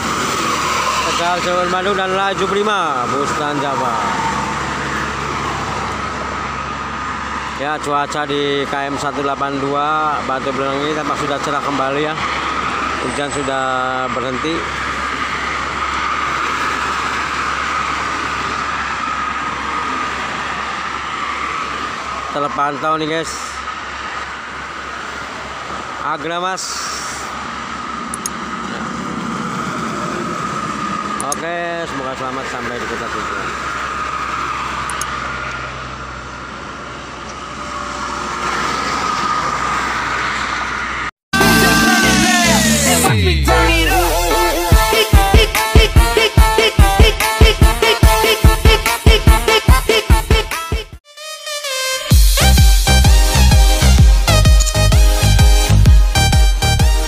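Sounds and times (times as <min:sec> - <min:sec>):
motorway traffic on wet road: 0:00.0 - 0:42.0.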